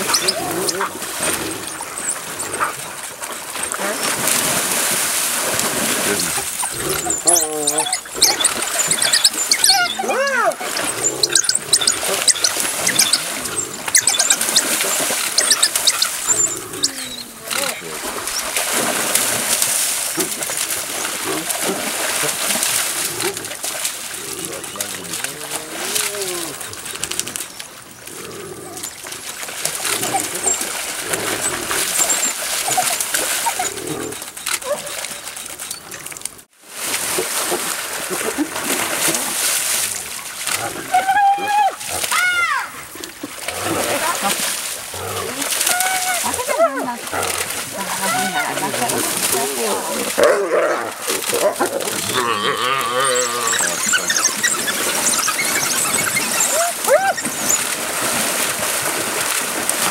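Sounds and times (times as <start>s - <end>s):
wild dogs and hyenas squealing: 0.0s - 3.0s, 5.8s - 18.6s, 24.2s - 29.0s, 29.7s - 35.9s, 40.6s - 42.9s, 43.6s - 57.8s
splashing water: 0.0s - 59.9s.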